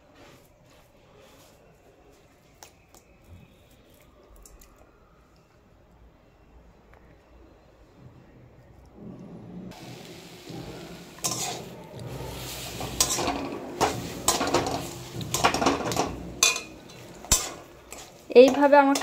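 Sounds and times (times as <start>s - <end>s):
faint steady hiss: 9.7s - 18.8s
spatula scraping metal pan: 9.9s - 19.0s.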